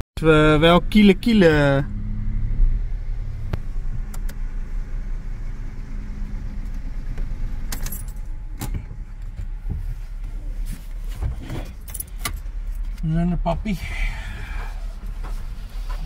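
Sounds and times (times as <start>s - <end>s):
car engine humming: 0.2s - 16.0s.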